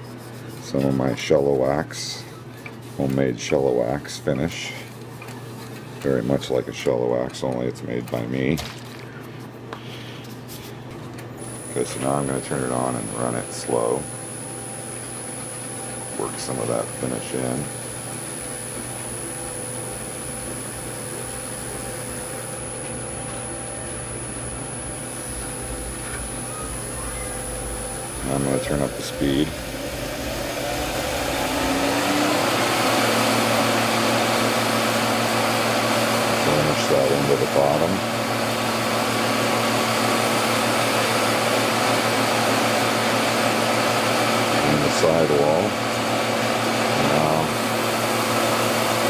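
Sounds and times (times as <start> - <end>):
wood lathe motor hum: 11.4 - 49.0
cloth rubbing spinning wood: 15.4 - 34.8.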